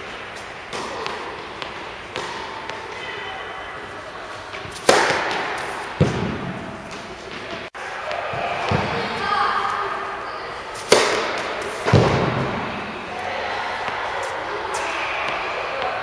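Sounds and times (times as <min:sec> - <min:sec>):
racket hitting ball: 0:00.7 - 0:03.1, 0:04.5 - 0:09.1, 0:10.8 - 0:16.0.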